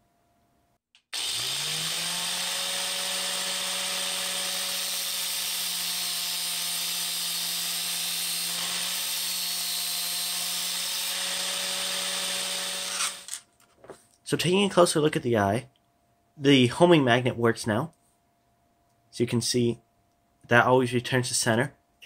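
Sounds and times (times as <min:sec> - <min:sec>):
angle grinder grinding nail: 0:01.0 - 0:13.4.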